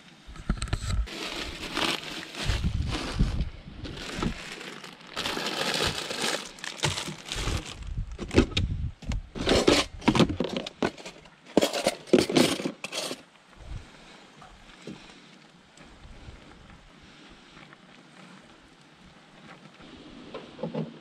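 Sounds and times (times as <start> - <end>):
plastic bags crinkling: 1.0 - 8.4
pans and containers clattering: 9.4 - 13.2.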